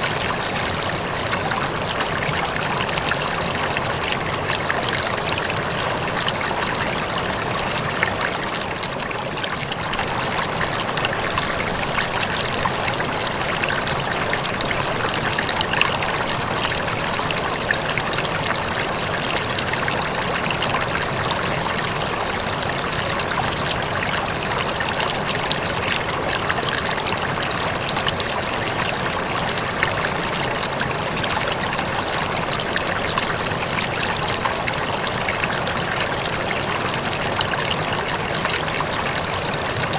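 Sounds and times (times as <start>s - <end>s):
aquarium water trickling: 0.0s - 39.9s.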